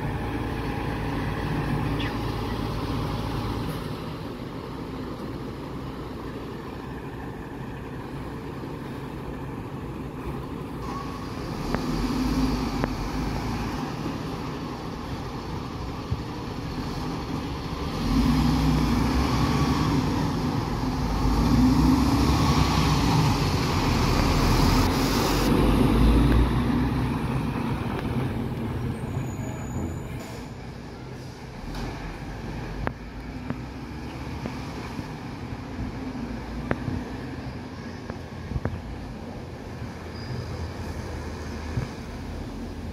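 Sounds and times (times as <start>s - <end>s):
diesel truck engine running: 0.0s - 37.3s.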